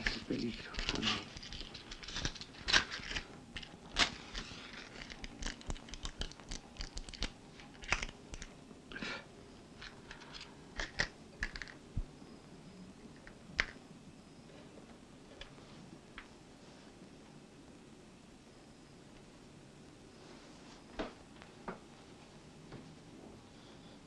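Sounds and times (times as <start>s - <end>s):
small clicks taps and rustles: 0.0s - 8.6s.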